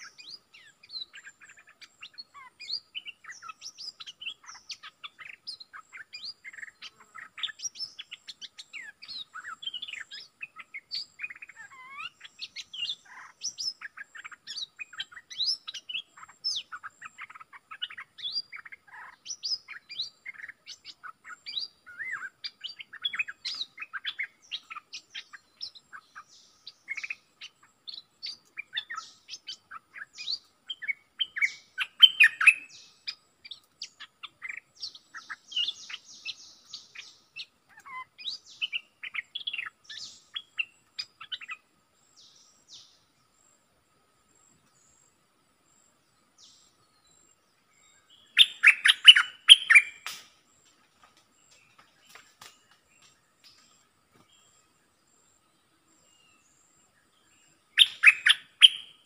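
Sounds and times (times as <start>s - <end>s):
bird chirping and whistling: 31.2s - 32.8s, 48.3s - 50.2s, 57.8s - 59.0s.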